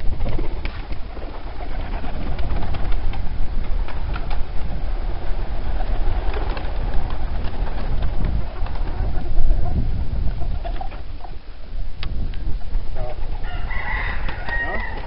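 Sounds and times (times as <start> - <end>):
pigeon wingbeats and wing claps: 0.2 - 9.1, 13.7 - 15.0.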